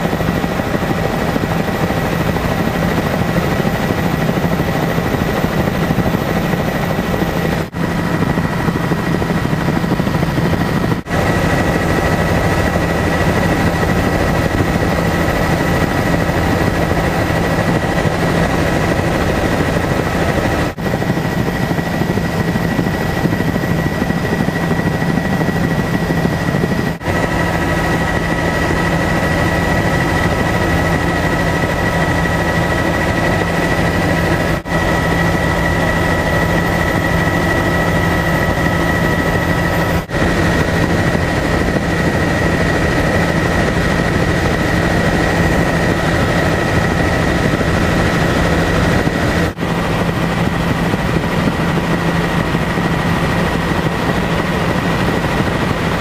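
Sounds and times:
helicopter cabin drone: 0:00.0 - 0:56.0
high whine: 0:00.0 - 0:56.0.

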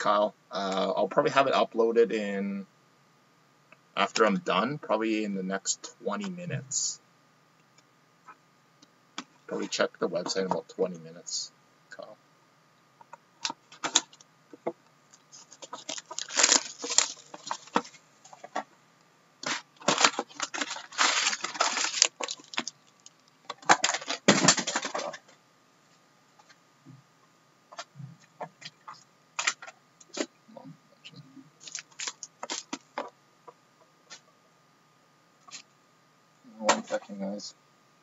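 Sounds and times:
foil packs crinkling and tearing: 0:15.4 - 0:17.9, 0:19.4 - 0:25.2, 0:31.6 - 0:32.8.

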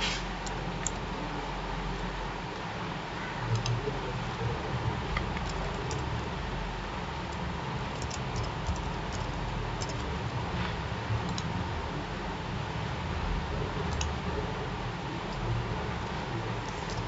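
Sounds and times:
steady background hiss: 0:00.0 - 0:17.0
computer keyboard typing: 0:03.5 - 0:03.8, 0:05.1 - 0:06.3, 0:07.3 - 0:10.1, 0:13.9 - 0:14.1.

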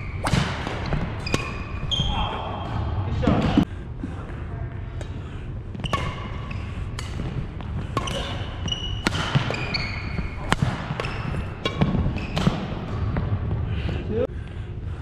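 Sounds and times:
rackets smacking shuttlecock: 0:00.0 - 0:02.0, 0:05.8 - 0:13.0
shoes squeaking on court floor: 0:00.0 - 0:02.9, 0:05.7 - 0:13.3.

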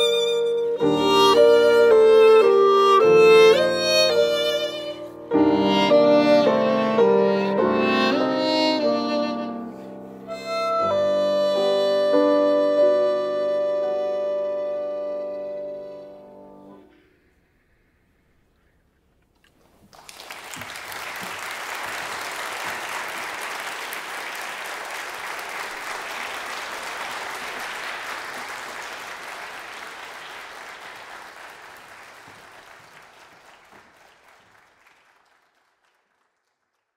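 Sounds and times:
audience applauding: 0:19.6 - 0:36.9.

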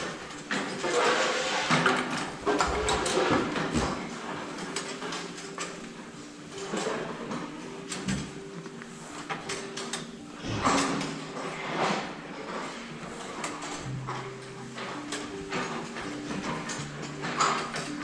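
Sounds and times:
metal barriers clattering: 0:00.0 - 0:08.4.

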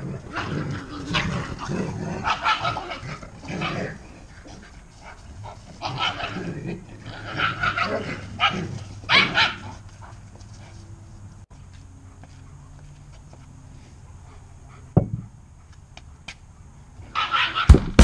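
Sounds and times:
small dog barking: 0:07.3 - 0:09.7.

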